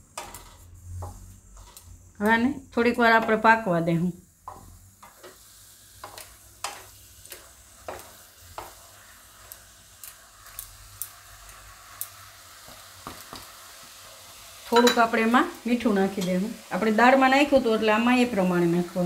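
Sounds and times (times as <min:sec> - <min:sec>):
spatula scraping a pan: 0:00.0 - 0:02.2, 0:04.4 - 0:10.7
faint sizzle of cooking: 0:00.0 - 0:19.0.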